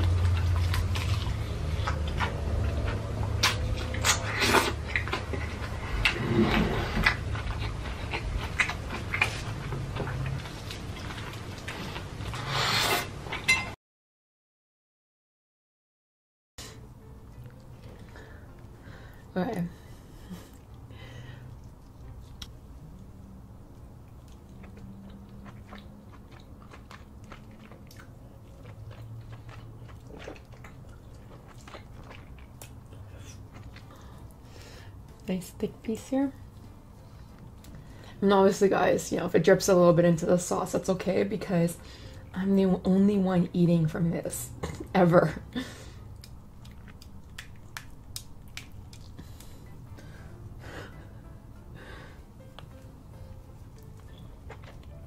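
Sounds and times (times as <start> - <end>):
biting and chewing: 0.0 - 13.5, 20.2 - 35.2, 45.9 - 50.1, 52.4 - 55.0.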